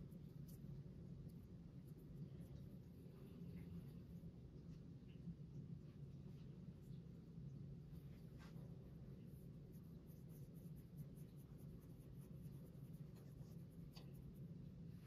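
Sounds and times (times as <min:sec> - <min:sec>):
steady low hum: 0:00.0 - 0:15.0
palms rubbing dough: 0:08.0 - 0:15.0.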